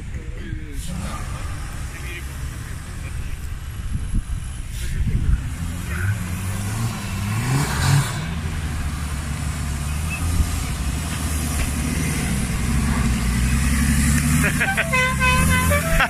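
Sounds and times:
engine revving and droning: 4.6s - 16.0s.

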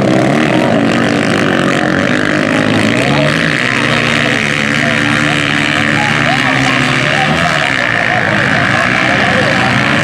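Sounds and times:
dirt bike engines revving: 0.0s - 10.0s.

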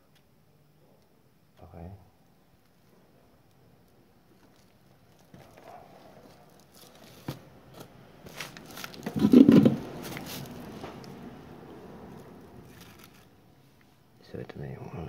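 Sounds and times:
knocking and rustling: 6.9s - 11.0s.

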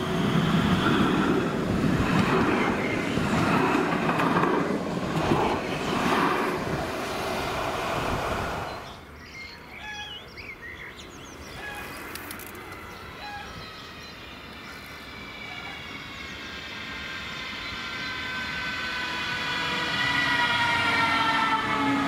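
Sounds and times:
light-rail car motor whine: 0.0s - 9.7s, 11.4s - 22.0s
birds chirping: 8.7s - 19.2s.

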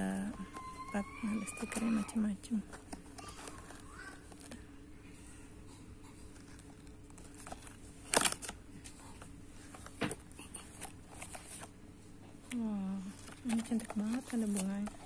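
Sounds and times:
plastic packs rustling: 0.0s - 4.7s, 6.2s - 11.8s, 12.6s - 15.0s
steady low hum: 0.0s - 15.0s
sharp plastic rustles: 6.2s - 11.8s, 13.0s - 15.0s
handling cardboard box and paper: 13.1s - 15.0s.

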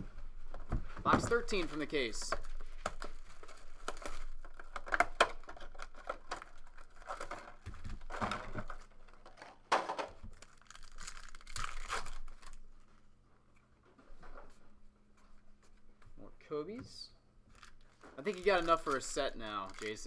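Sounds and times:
plastic wrap tearing and crinkling: 2.5s - 9.4s, 10.2s - 12.9s, 17.5s - 20.0s
cards being handled: 17.5s - 20.0s.

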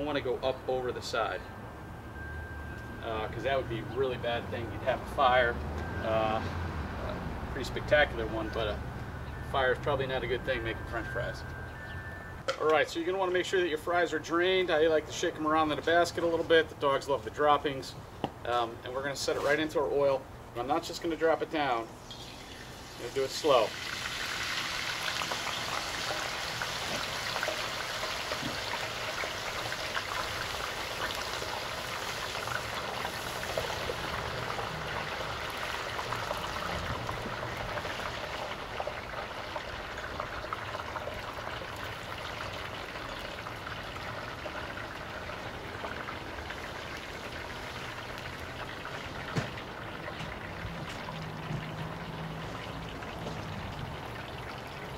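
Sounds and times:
fries sizzling in oil: 21.8s - 54.9s.

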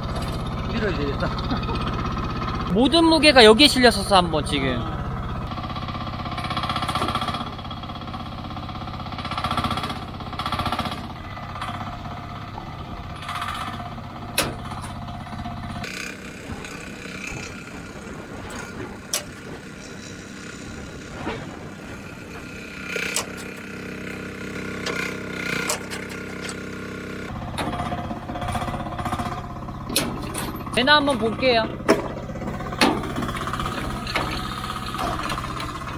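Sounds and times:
excavator engine running: 0.0s - 35.9s
metal clanks: 12.5s - 15.3s, 22.2s - 23.7s, 24.6s - 26.7s, 27.3s - 35.9s.

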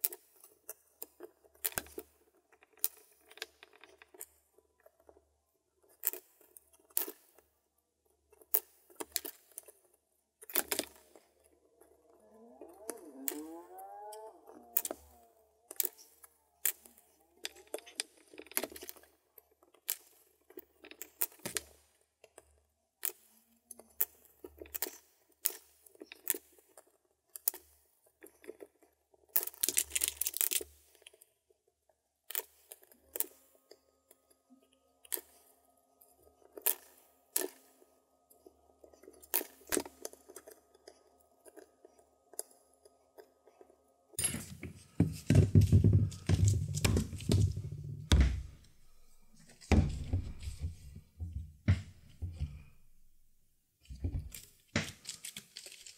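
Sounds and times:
faint steady tone: 32.7s - 45.1s
needle tapping and scraping leather: 43.2s - 53.2s.

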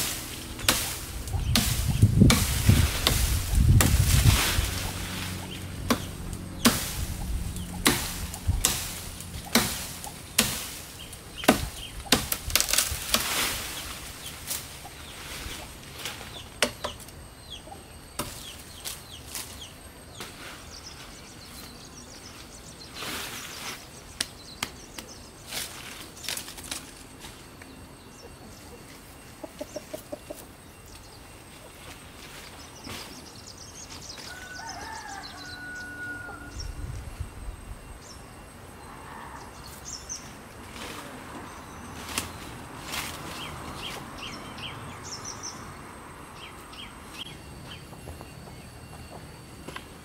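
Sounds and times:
blade chopping branches: 0.0s - 17.2s, 18.1s - 20.5s, 23.0s - 27.5s, 41.9s - 44.4s
leafy branches rustling: 0.0s - 28.0s, 30.4s - 38.4s, 39.6s - 48.0s
distant birds calling: 0.0s - 50.0s.

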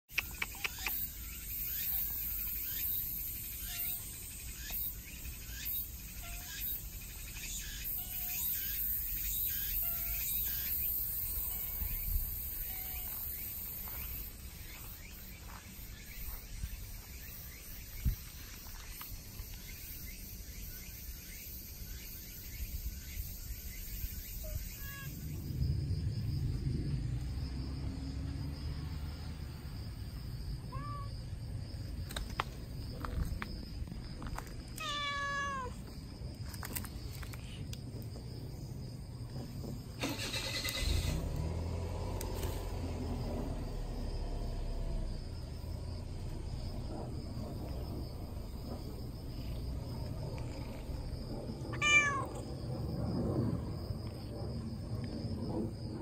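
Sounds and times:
cat meowing: 12.6s - 13.1s, 30.7s - 31.1s, 34.8s - 35.8s, 51.7s - 52.4s
low steady rumble: 41.1s - 56.0s.

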